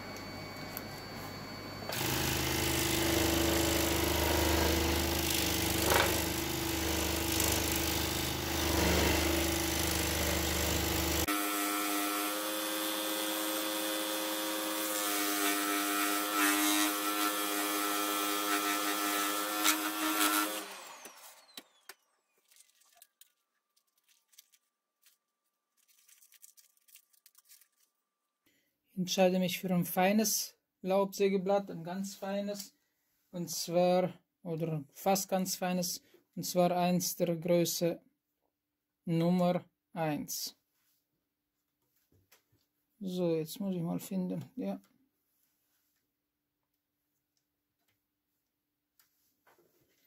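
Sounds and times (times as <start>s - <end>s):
scroll saw cutting wood: 1.8s - 22.2s.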